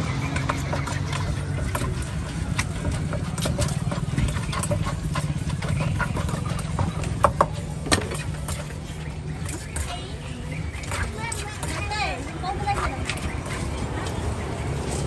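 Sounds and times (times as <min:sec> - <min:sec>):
wooden pestle knocking in mortar: 0:00.1 - 0:08.8.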